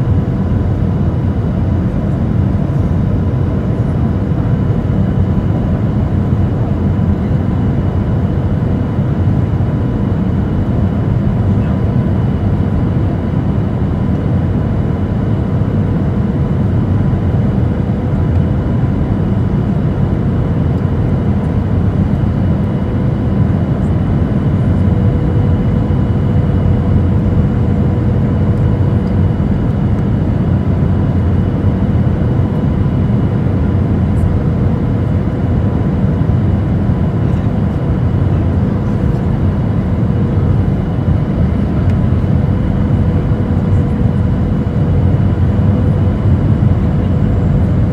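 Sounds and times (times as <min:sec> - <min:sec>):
airplane engines rumbling: 0:00.0 - 0:47.9.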